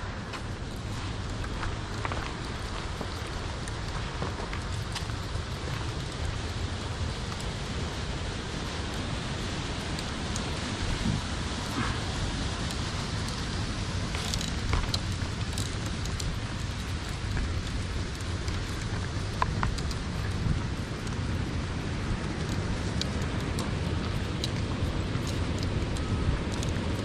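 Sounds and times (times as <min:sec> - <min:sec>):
grass rustling: 0:00.0 - 0:06.4
steady rushing noise: 0:00.0 - 0:27.0
footsteps on dirt path: 0:00.3 - 0:05.4
light ticks: 0:14.1 - 0:21.3, 0:22.1 - 0:27.0.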